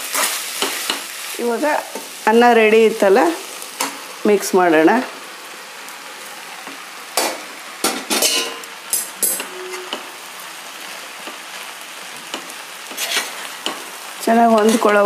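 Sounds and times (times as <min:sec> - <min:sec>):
vegetables and rice sizzling in pan: 0:00.0 - 0:15.0
metal spoon scraping a pan: 0:08.1 - 0:10.2, 0:12.4 - 0:13.8, 0:14.5 - 0:15.0.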